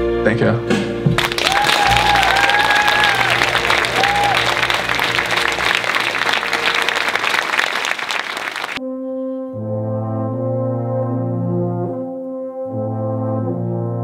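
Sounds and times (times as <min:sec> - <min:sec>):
audience applauding: 0:01.2 - 0:08.8
brass playing slow chords: 0:03.1 - 0:07.4, 0:08.8 - 0:14.0.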